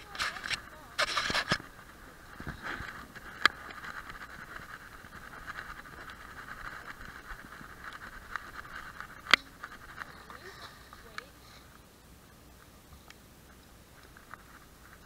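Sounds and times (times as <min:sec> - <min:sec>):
camera handling hiss: 0:00.1 - 0:01.7.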